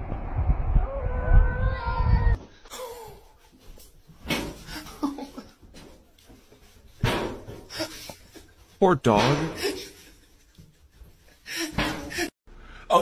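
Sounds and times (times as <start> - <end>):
low rumble: 0.0 - 2.4.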